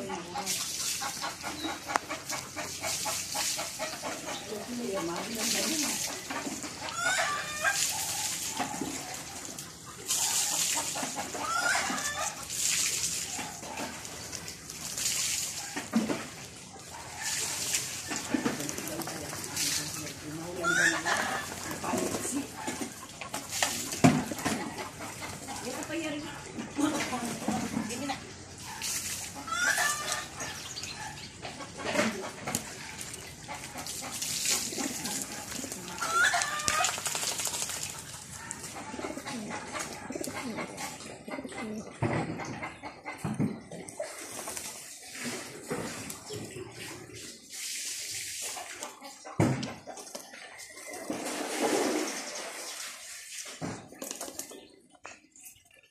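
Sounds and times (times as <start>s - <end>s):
fowl clucking and calling: 0.0s - 12.6s, 15.6s - 28.0s, 28.6s - 44.2s
pigeons splashing in water: 0.0s - 55.9s
wings flapping: 34.0s - 38.6s.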